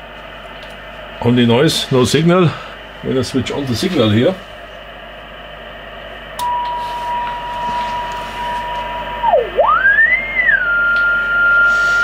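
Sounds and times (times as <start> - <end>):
receiver hiss: 6.4 - 12.0
radio beat tone sweeping: 7.5 - 12.0.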